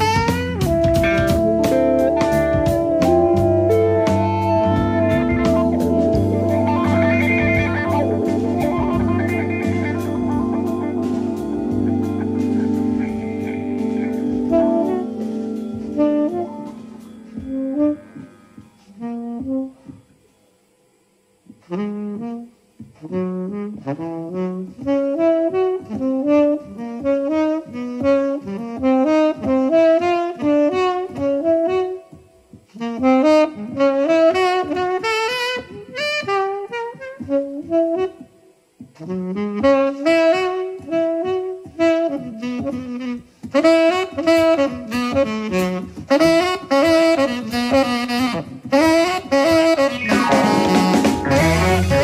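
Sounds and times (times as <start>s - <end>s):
band chord: 0.0s - 19.8s, 49.7s - 52.0s
solo saxophone runs: 0.0s - 52.0s.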